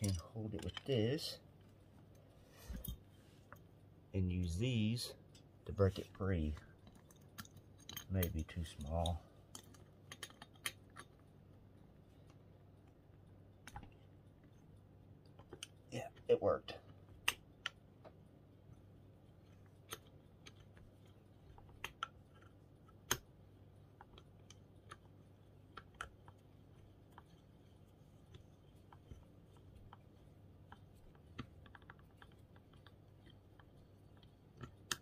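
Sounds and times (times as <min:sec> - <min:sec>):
faint low hum: 0:00.0 - 0:35.0.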